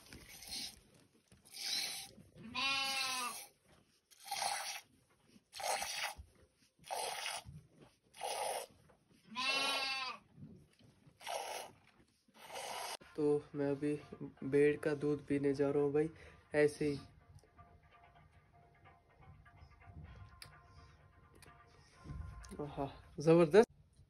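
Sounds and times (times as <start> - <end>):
goat bleating: 1.5 - 3.5, 9.3 - 10.3
milk squirts hissing: 4.1 - 4.9, 5.6 - 6.2, 6.8 - 7.5, 8.2 - 8.7, 11.2 - 11.8, 12.4 - 13.0.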